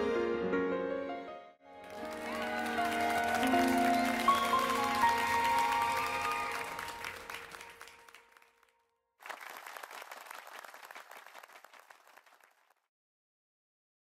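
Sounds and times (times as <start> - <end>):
applause: 1.8 - 12.9
music jingle: 1.9 - 7.0.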